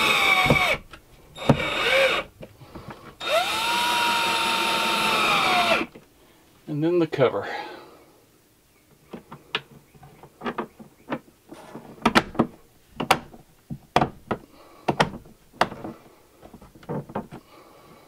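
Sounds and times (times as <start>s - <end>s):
plastic clicks and knocks: 12.0s - 17.4s.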